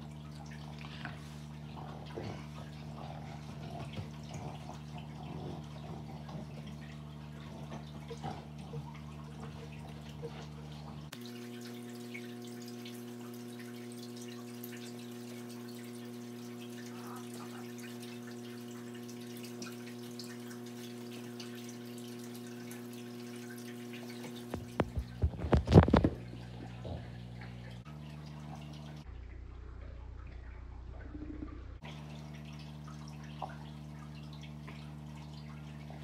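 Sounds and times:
low hum of held tones: 0:26.2 - 0:36.0.

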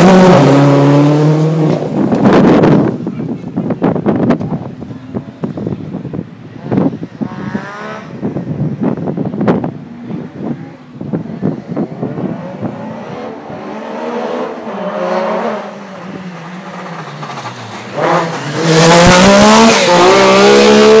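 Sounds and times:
rally car engine at high revs: 0:00.0 - 0:03.0, 0:06.5 - 0:08.4, 0:10.1 - 0:21.0.

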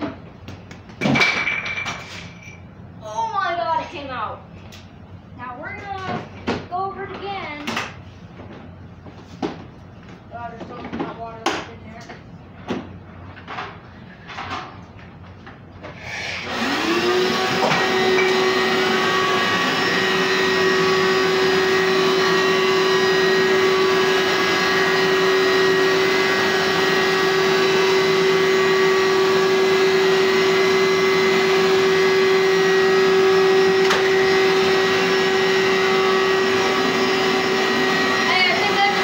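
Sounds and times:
carpet cleaner motor whining: 0:16.0 - 0:39.0.

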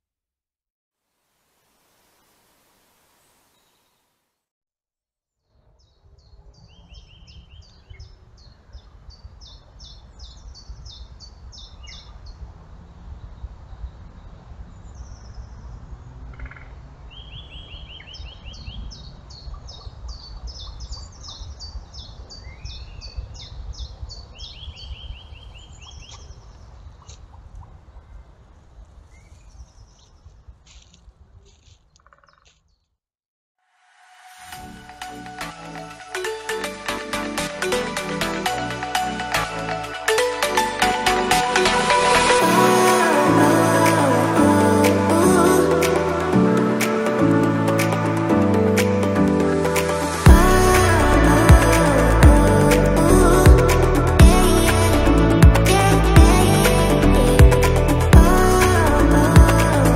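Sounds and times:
small songbirds singing: 0:05.8 - 0:12.4, 0:13.3 - 0:27.4
steady low rumble: 0:49.6 - 0:59.9.

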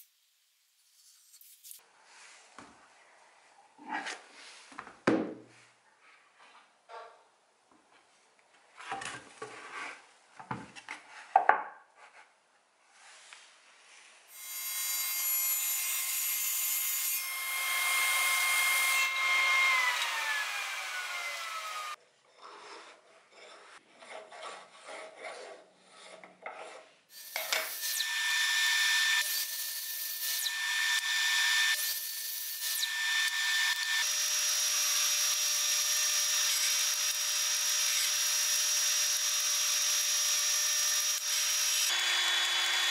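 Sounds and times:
drill press boring: 0:32.6 - 0:42.9.

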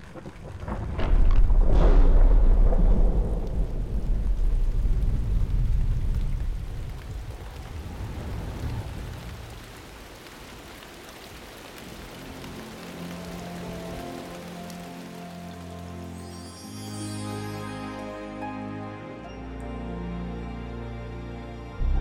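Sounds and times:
rain hiss: 0:00.0 - 0:21.0
deep rolling thunder: 0:00.2 - 0:09.8
soft sustained music tones: 0:11.2 - 0:22.0.

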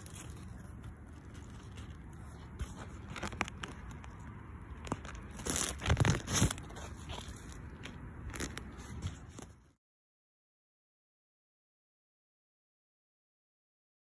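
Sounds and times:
leaves rustling against phone: 0:00.0 - 0:09.8.

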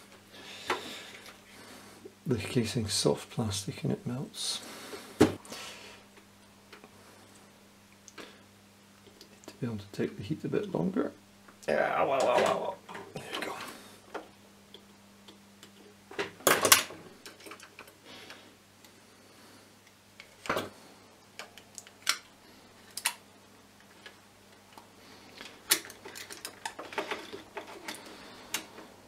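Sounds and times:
plastic parts clicking and knocking: 0:24.0 - 0:28.8.

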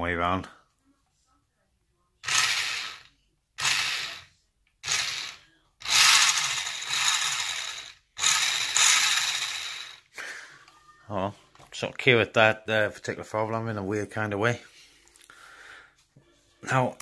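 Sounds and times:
toy car motor whirring: 0:02.2 - 0:10.1.

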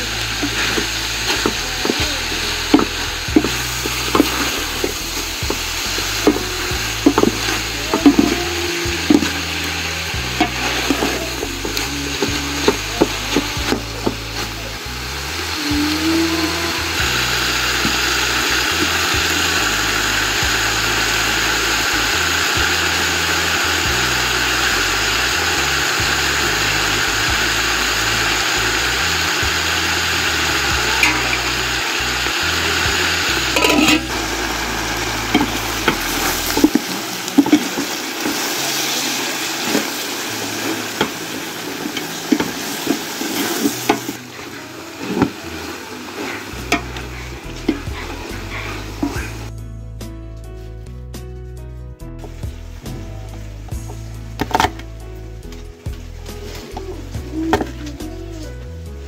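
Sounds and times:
food sizzling in metal pot: 0:00.0 - 0:49.5, 0:52.2 - 0:59.0
metal ladle clanking on pot: 0:33.6 - 0:34.2.

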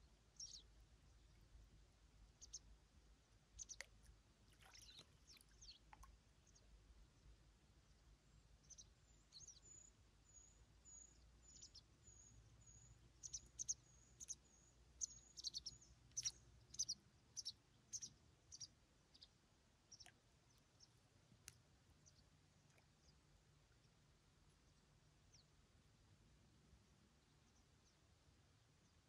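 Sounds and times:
small bird chirping: 0:00.4 - 0:01.4, 0:02.3 - 0:02.7, 0:03.5 - 0:06.7, 0:08.6 - 0:23.2.

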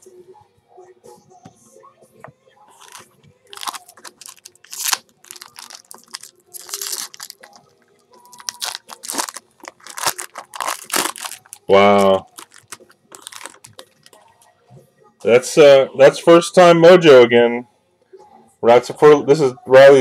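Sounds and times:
foil wrapper crinkling and tearing: 0:02.8 - 0:14.2.

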